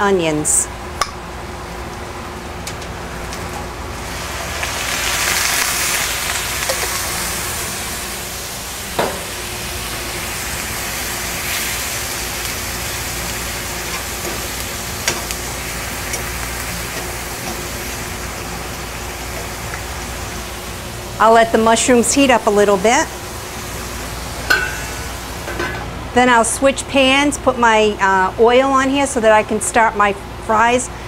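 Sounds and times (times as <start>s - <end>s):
exhaust hood hum: 0.0s - 27.8s
onions and mushrooms sizzling in pan: 3.9s - 25.7s.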